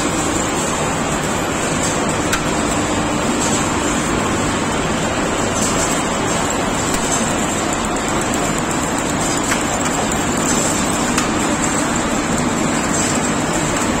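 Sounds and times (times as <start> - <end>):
wire drawing machine running: 0.0 - 14.0.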